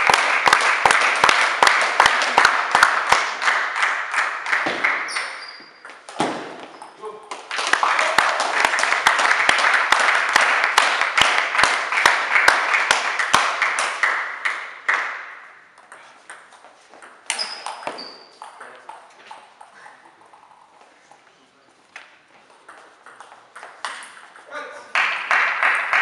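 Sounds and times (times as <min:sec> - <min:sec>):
rhythmic clapping: 0:00.0 - 0:05.4, 0:07.2 - 0:15.5, 0:23.2 - 0:26.0
spectators cheering: 0:07.6 - 0:13.4.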